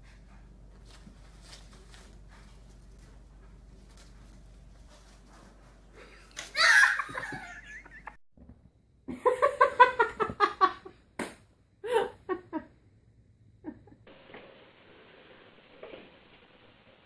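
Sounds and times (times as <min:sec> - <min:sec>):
person laughing: 0:06.0 - 0:08.2, 0:11.8 - 0:12.7.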